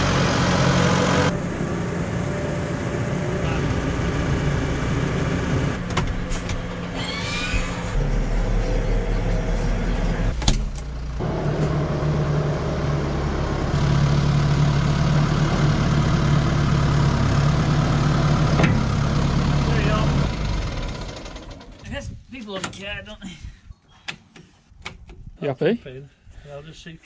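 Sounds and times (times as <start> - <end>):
diesel tractor engine running: 0.0 - 21.9.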